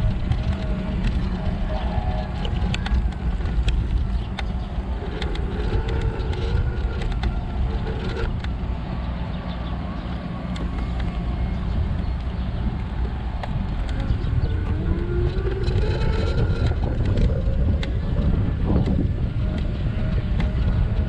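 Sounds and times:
clicks and rattles: 0.0s - 8.6s
scooter rolling on asphalt: 0.0s - 21.0s.

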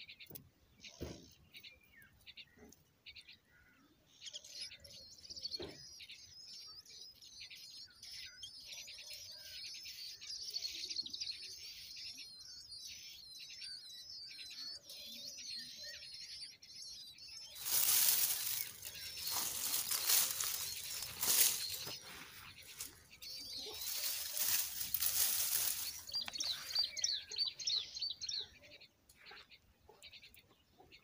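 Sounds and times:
nestlings begging chatter: 11.6s - 28.3s
loud rustling: 17.6s - 23.0s, 23.7s - 26.3s.

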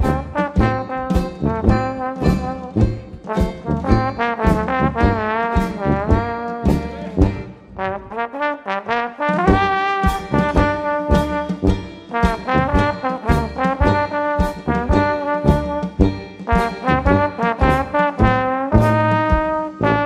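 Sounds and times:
jazz band playing live: 0.0s - 20.0s
trombone: 0.0s - 20.0s.

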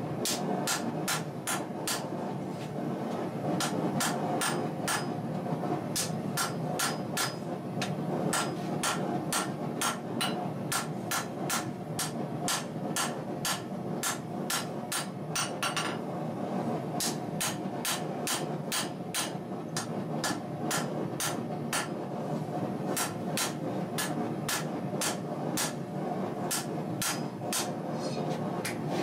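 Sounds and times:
hammer striking blade on anvil: 3.6s - 5.1s, 6.0s - 7.4s, 8.3s - 16.0s, 23.0s - 25.8s, 26.5s - 27.7s.

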